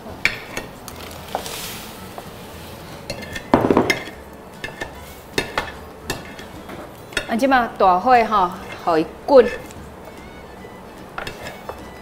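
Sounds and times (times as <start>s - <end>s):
batter hissing: 1.0s - 2.8s
spatula scraping a wok: 1.2s - 7.3s, 8.3s - 12.0s.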